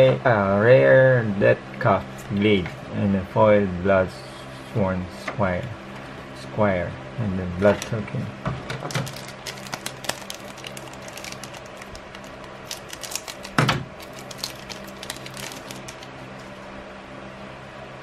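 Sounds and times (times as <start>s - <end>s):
low hum: 0.0s - 18.0s
foil wrapper crinkling: 8.8s - 16.7s.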